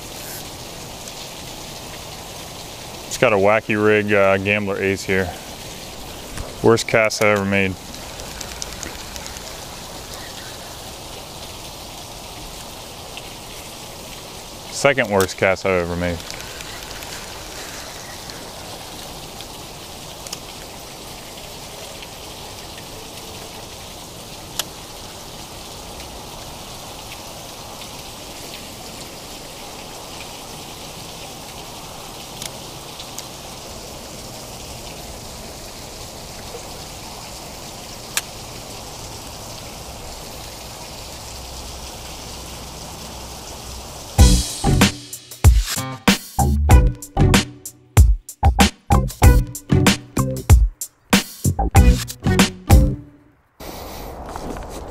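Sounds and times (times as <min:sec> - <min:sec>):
water spattering and trickling: 0:00.0 - 0:46.3
sharp clicks: 0:07.2 - 0:09.5, 0:16.2 - 0:17.2.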